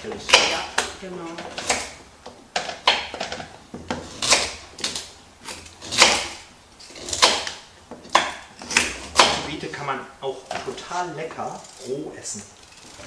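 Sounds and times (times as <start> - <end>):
knife chopping on plastic board: 0.1 - 2.0, 2.6 - 5.0, 5.8 - 6.4, 7.0 - 9.5.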